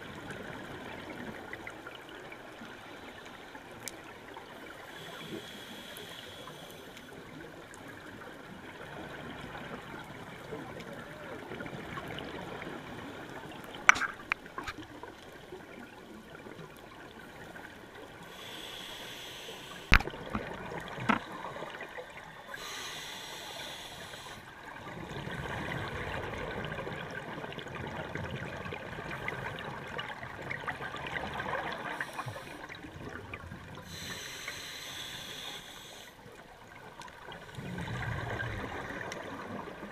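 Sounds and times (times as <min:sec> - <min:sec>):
regulator hissing inhalations: 0:04.8 - 0:07.2, 0:18.2 - 0:20.0, 0:22.4 - 0:24.5, 0:31.8 - 0:32.8, 0:33.8 - 0:36.2.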